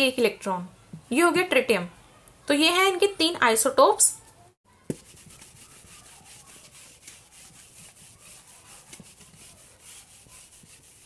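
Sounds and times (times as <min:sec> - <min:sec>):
writing scratching on a surface: 0:04.9 - 0:11.0.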